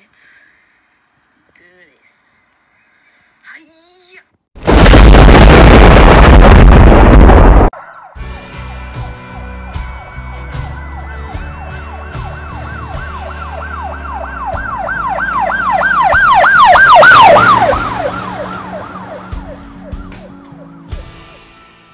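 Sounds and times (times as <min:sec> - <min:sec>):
emergency siren passing by: 0:07.7 - 0:21.0.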